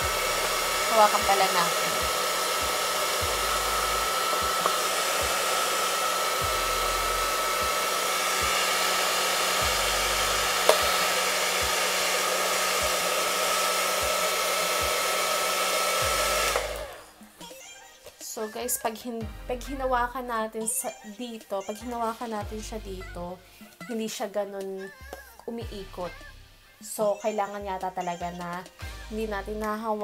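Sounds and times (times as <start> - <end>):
hair dryer running with a whine: 0.0 - 17.3.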